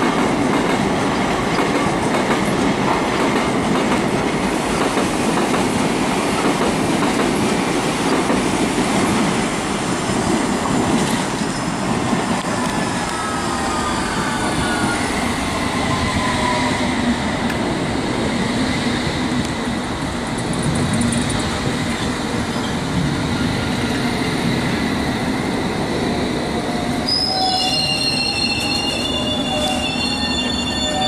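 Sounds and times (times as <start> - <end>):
train wheels rumbling on rail: 0.0 - 31.0
high squealing tones: 12.8 - 17.0, 27.0 - 31.0.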